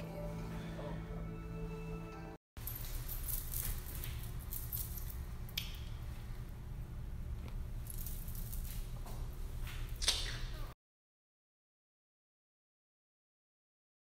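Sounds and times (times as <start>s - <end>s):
low steady rumble: 2.6s - 9.6s.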